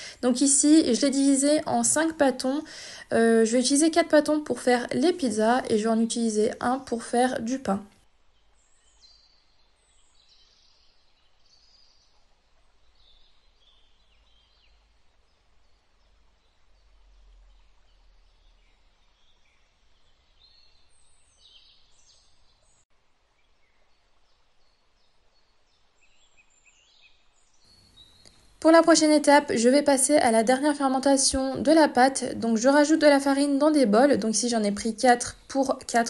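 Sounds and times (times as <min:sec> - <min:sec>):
faint bird chirps: 0:08.3 - 0:30.2.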